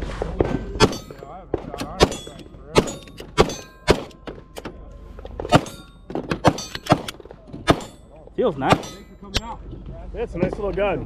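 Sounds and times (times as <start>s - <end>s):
pistol firing single shots: 0.8s - 4.2s, 5.5s - 8.0s, 8.7s - 9.0s.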